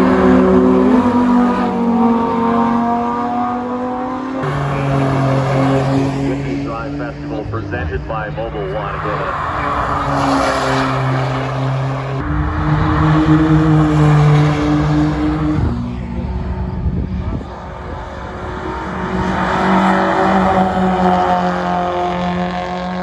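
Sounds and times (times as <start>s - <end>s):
second car engine approaching: 0.0s - 23.0s.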